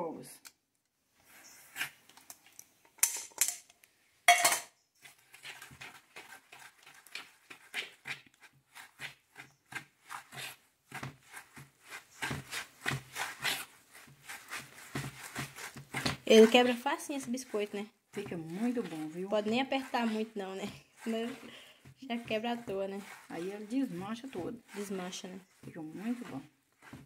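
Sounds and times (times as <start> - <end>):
fork clinking on metal pot: 4.3 - 4.7
fork clinking and scraping in basin: 4.3 - 8.2.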